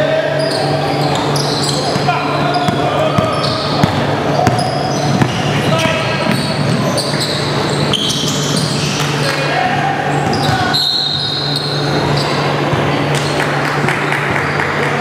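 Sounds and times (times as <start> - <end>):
players' voices: 0.0 - 15.0
steady low hum: 0.0 - 15.0
short high squeaks: 0.3 - 2.7, 6.3 - 9.0, 10.3 - 12.5
basketball bouncing on hardwood: 2.6 - 6.9.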